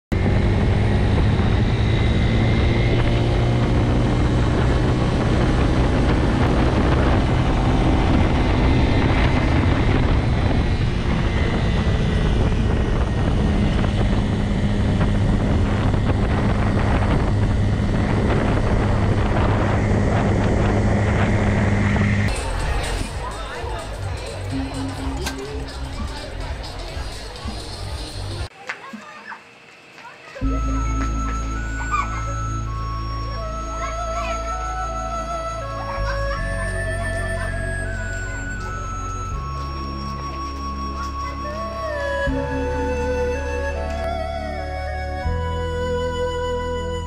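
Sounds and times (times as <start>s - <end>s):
motorcycle engine cruising: 0.1s - 28.5s, 30.4s - 47.0s
wind and road noise: 0.1s - 28.5s.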